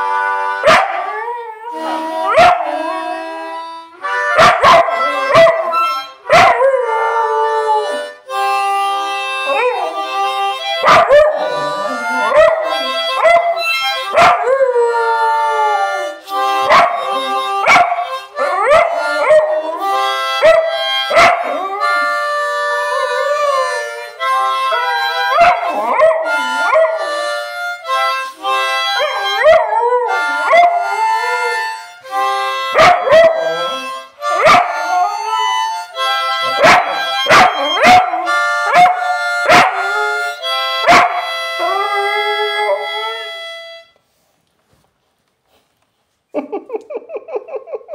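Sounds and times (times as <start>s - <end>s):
instrument playing held chords: 0.0s - 44.0s
dog howling: 36.6s - 43.4s.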